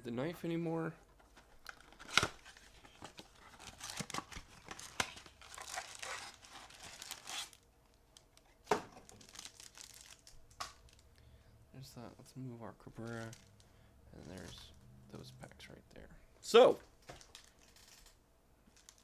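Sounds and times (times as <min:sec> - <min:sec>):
wrappers crinkling: 0:01.6 - 0:11.1, 0:13.0 - 0:13.6, 0:17.0 - 0:19.0.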